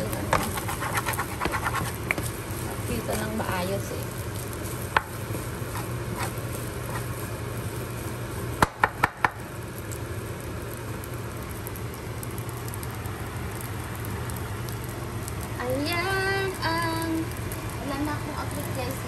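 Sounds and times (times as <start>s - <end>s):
spoon stirring rice in pan: 0.1s - 3.1s, 4.4s - 7.3s.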